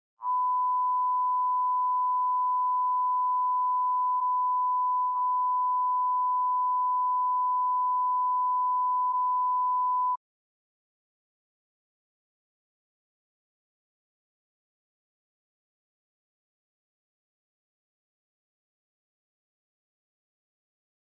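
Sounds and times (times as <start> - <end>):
steady test tone beep: 0.2 - 10.2.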